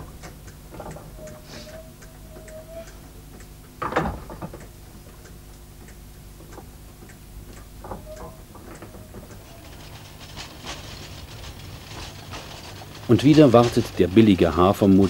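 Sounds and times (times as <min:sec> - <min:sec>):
low steady hum: 0:00.0 - 0:15.0
machinery ticking and clicking: 0:00.0 - 0:15.0
brief squeak: 0:01.1 - 0:03.0.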